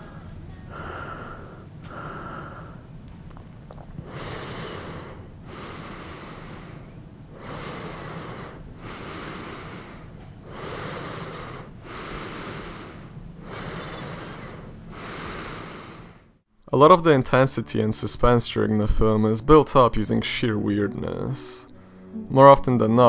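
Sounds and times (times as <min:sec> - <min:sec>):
person breathing heavily: 0:00.0 - 0:02.9, 0:03.8 - 0:16.4, 0:21.7 - 0:22.2.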